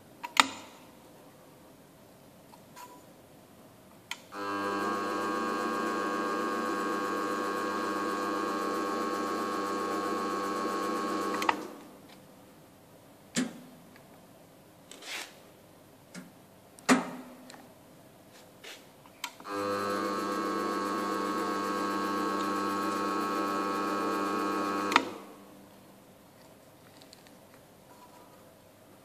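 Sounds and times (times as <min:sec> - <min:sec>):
electric drive humming: 0:04.3 - 0:11.8, 0:19.4 - 0:25.6.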